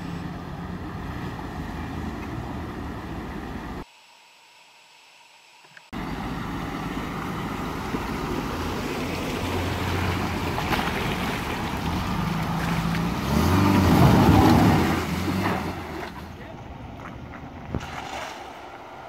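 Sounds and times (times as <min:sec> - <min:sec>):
water rushing and splashing: 0:06.0 - 0:16.3.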